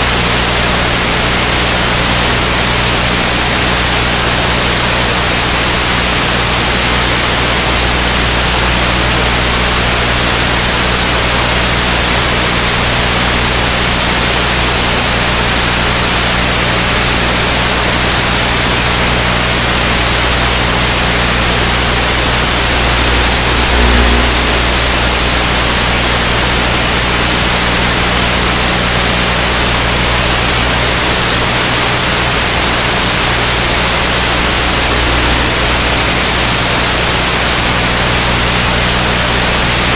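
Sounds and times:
low electrical hum: 0.0s - 39.9s
static hiss: 0.0s - 39.9s.

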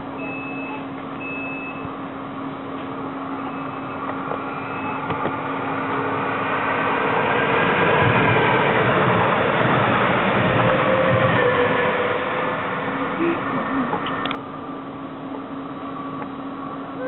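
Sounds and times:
train wheels rumbling on rail: 1.8s - 14.4s.

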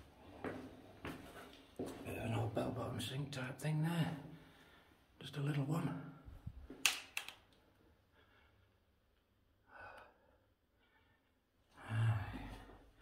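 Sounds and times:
man breathing: 4.3s - 5.2s, 7.8s - 13.0s.

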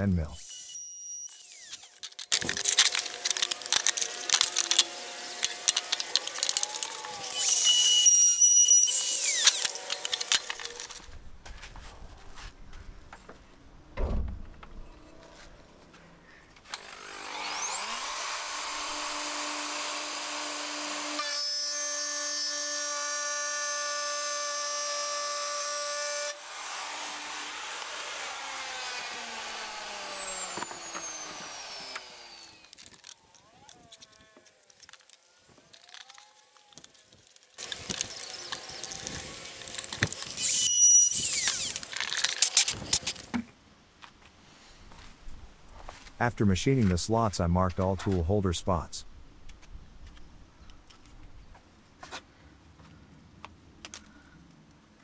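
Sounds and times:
router whining: 0.4s - 11.1s, 16.6s - 43.3s
thump: 14.0s - 14.8s.

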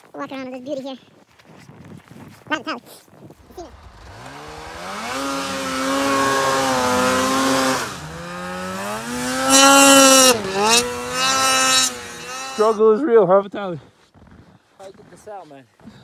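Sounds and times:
snowmobile engine revving: 3.4s - 12.9s.

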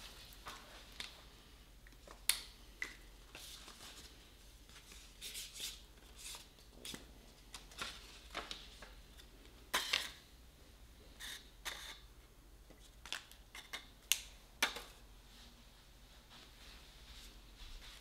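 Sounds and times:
paper cards rustling: 3.3s - 10.2s.

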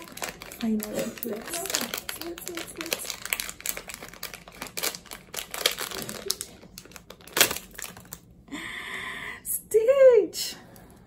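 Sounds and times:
plastic packaging crinkling: 0.0s - 8.4s.

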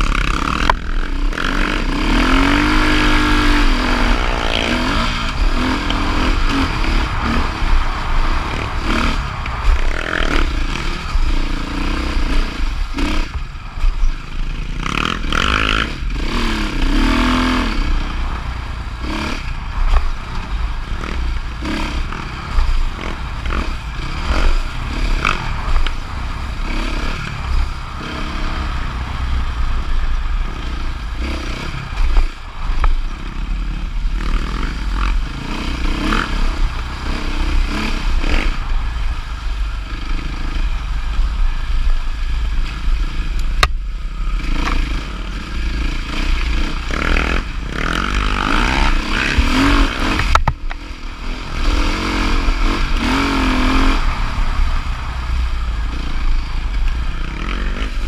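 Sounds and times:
dirt bike engine revving: 0.0s - 58.0s
wind rumble on microphone: 0.0s - 58.0s
knocks and clatter over bumps: 19.4s - 26.6s, 45.9s - 51.0s.

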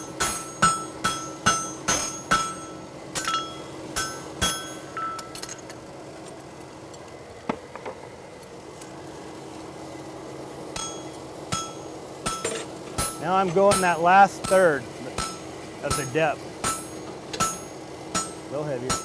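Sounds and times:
hammer striking horseshoe on anvil: 0.0s - 5.5s, 10.8s - 19.0s
low steady hum: 0.0s - 19.0s.

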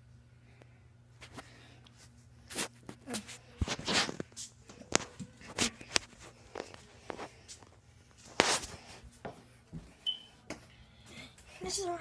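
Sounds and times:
footsteps: 1.2s - 11.7s
scratchy rub on microphone: 2.5s - 4.5s.

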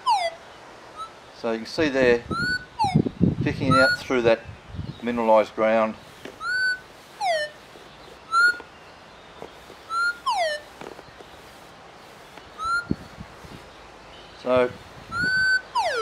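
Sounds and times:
metal detector gliding tones: 2.3s - 3.0s, 3.7s - 4.1s, 6.4s - 7.6s, 8.2s - 8.7s, 9.8s - 11.0s, 12.5s - 13.2s, 15.1s - 16.0s.

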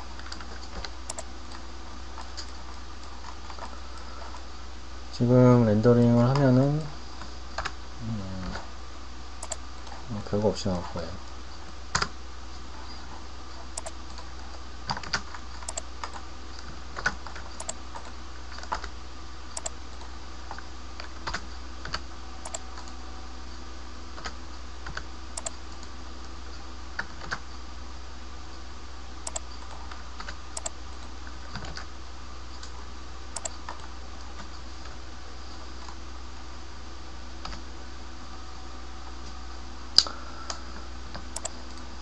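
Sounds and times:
steady low hum: 0.0s - 42.0s
keyboard and mouse clicks: 0.2s - 1.6s, 9.4s - 10.0s, 13.7s - 14.3s, 14.9s - 18.9s, 19.6s - 20.1s, 21.0s - 23.0s, 24.2s - 25.9s, 29.2s - 31.9s, 33.4s - 34.5s, 41.1s - 41.9s.

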